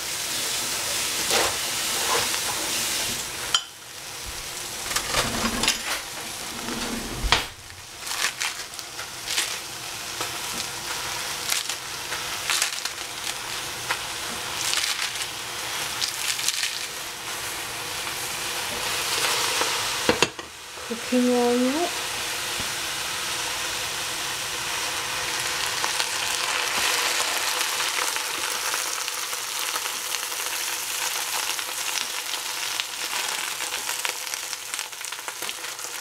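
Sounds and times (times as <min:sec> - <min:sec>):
lettuce leaves tearing and snapping: 0:08.0 - 0:09.6, 0:12.4 - 0:13.4, 0:14.6 - 0:15.3, 0:16.0 - 0:16.9.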